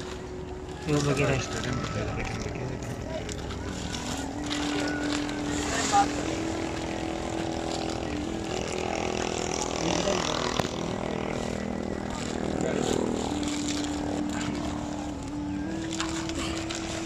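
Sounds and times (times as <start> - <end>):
canvas tent rustling and dragging: 0.0 - 17.0
motor drone: 0.0 - 17.0.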